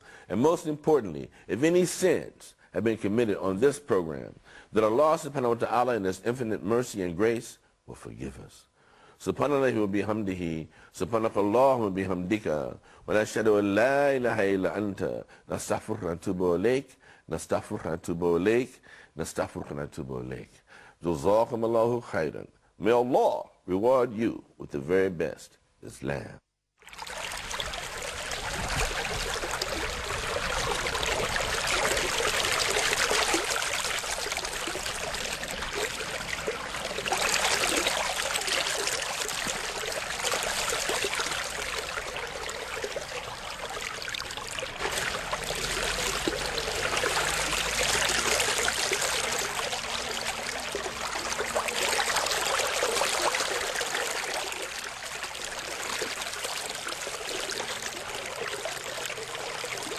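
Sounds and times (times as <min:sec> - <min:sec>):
rushing running water: 0:26.8 - 0:59.9.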